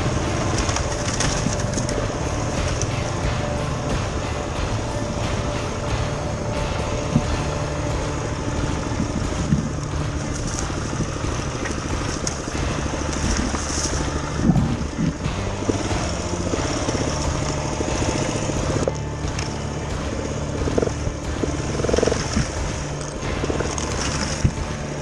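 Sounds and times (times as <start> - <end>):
dirt bike engine running: 0.0 - 25.0
sharp knocks: 0.0 - 25.0.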